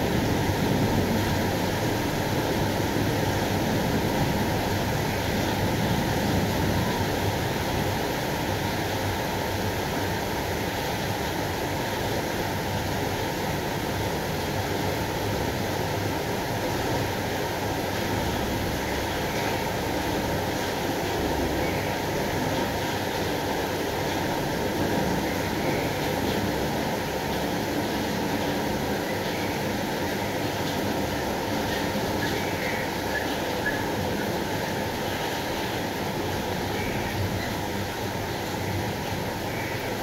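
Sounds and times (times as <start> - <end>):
heavy rain pouring: 0.0 - 40.0.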